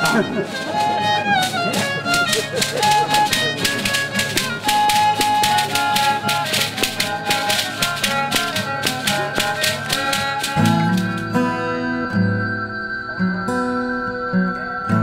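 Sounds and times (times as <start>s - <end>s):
ankle rattles shaking: 0.0s - 11.2s
acoustic guitar playing: 0.0s - 15.0s
guitar strum: 0.0s - 15.0s.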